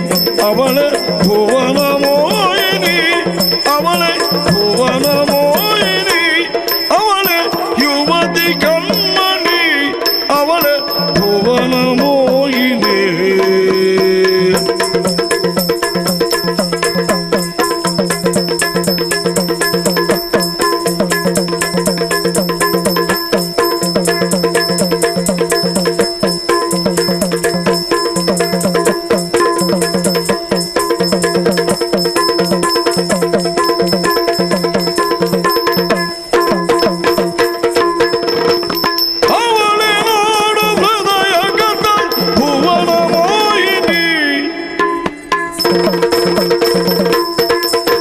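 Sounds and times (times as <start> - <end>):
ankle bells jingling: 0.0 - 48.0
drums beating fast: 0.0 - 48.0
hand cymbals: 0.0 - 48.0
person singing wavering phrase: 39.3 - 44.7.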